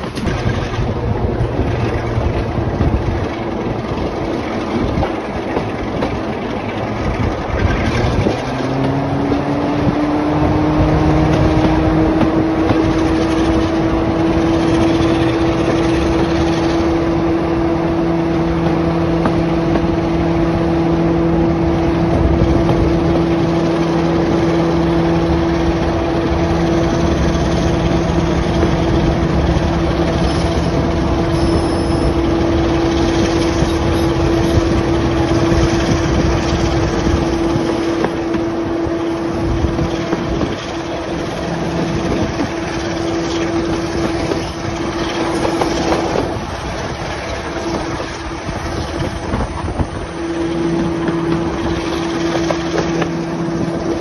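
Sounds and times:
diesel locomotive engine drone: 0:00.0 - 0:54.0
wind at carriage window: 0:00.0 - 0:54.0.

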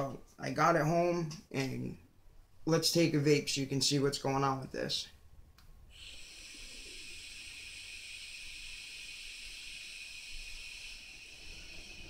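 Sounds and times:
vape hissing: 0:05.9 - 0:12.0.

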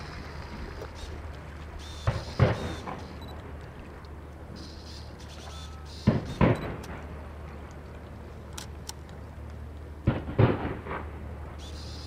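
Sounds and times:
fireworks exploding: 0:10.1 - 0:11.1.

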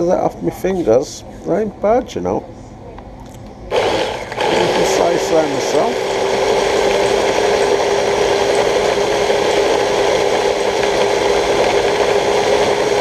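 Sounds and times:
food chopper whirring: 0:03.7 - 0:13.0.

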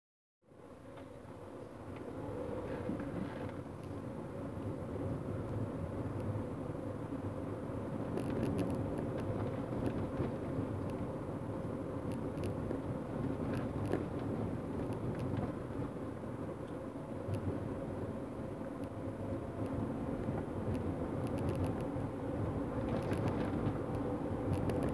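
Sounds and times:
tyres and engine rumble: 0:00.5 - 0:24.9
sharp clicks and knocks: 0:22.8 - 0:24.9.

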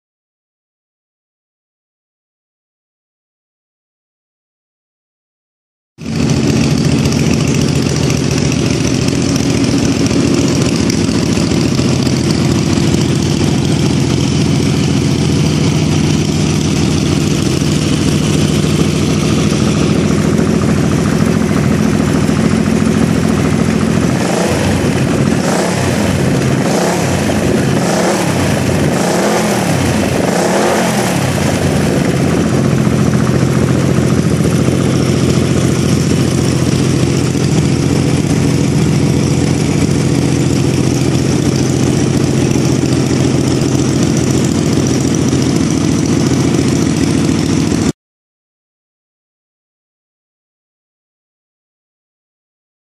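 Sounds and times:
engine throttle blips: 0:06.0 - 0:47.9
motorcycle engine idling: 0:06.0 - 0:47.9.

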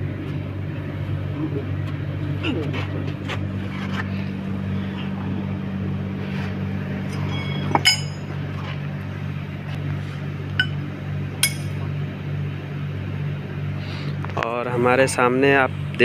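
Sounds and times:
low machine hum: 0:00.0 - 0:16.0
metallic clinks of steel pipe: 0:07.1 - 0:08.2, 0:11.4 - 0:11.7.

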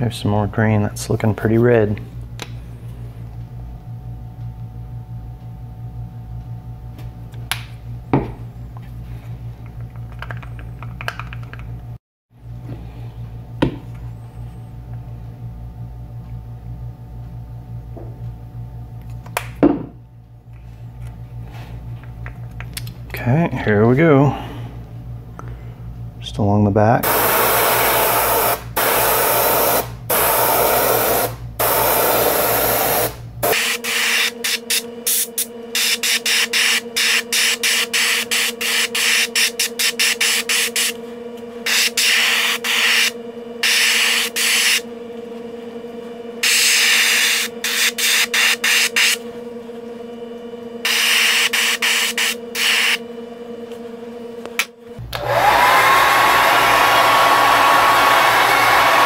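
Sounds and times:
steady hum: 0:00.0 - 0:59.0
hair dryer whine: 0:27.0 - 0:41.0, 0:41.7 - 0:44.8, 0:54.5 - 0:59.0
airbrush hissing bursts: 0:27.1 - 0:40.9.

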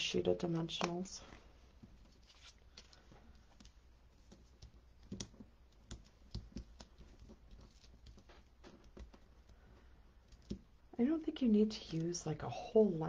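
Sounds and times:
fingers tapping cardstock: 0:03.4 - 0:10.8.

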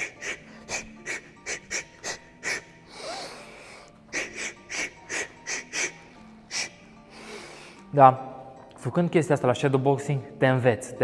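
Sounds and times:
sharp hissing exhalations: 0:00.0 - 0:07.9.

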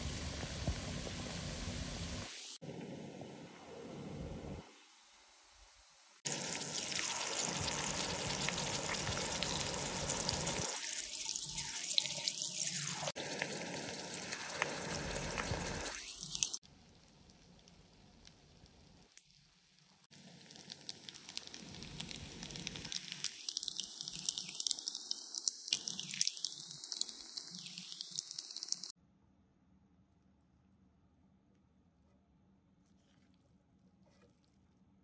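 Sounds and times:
water running from tap: 0:06.3 - 0:16.6, 0:22.7 - 0:28.9.

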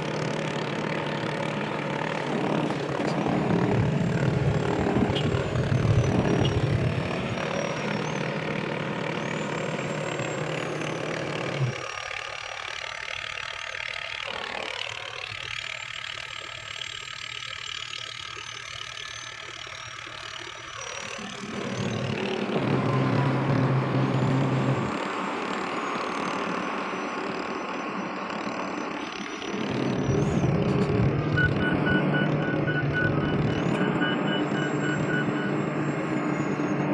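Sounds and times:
diesel engine running: 0:00.0 - 0:36.9
rapid beeping: 0:15.7 - 0:36.9.

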